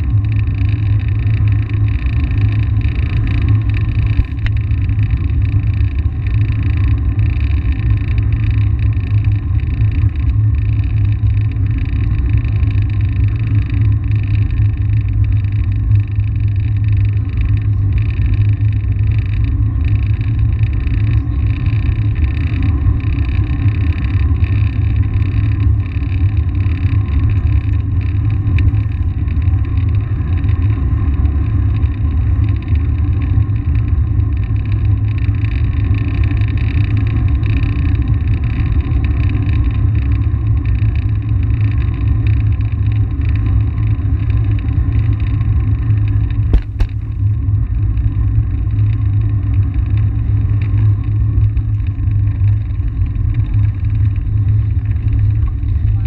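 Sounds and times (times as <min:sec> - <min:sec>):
sharp click: 0:46.5 - 0:47.0.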